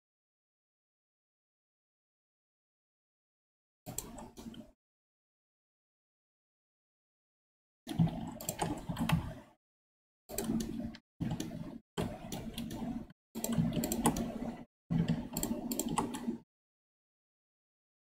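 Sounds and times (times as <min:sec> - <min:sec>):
keyboard and mouse clicking: 0:03.9 - 0:04.7, 0:07.9 - 0:09.4, 0:10.3 - 0:16.4.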